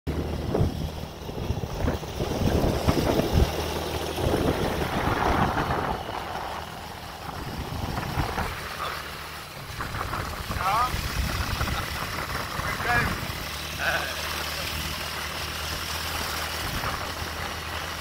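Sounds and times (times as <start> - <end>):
wind buffeting microphone: 0.1 - 13.7, 14.8 - 18.0.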